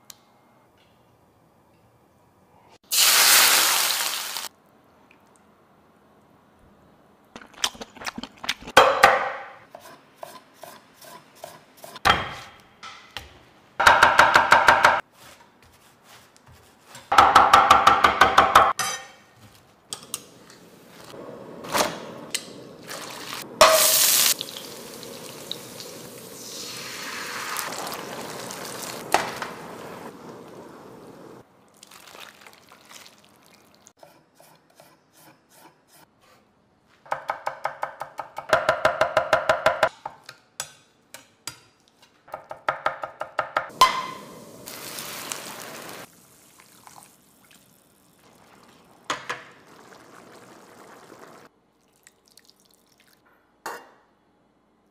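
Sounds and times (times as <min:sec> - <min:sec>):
water simmering in a pan: 0:22.9 - 0:33.9, 0:43.9 - 0:53.2.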